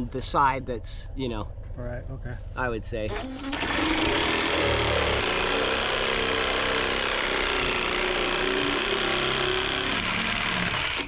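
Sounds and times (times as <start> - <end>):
electric saw cutting lumber: 3.1 - 11.0.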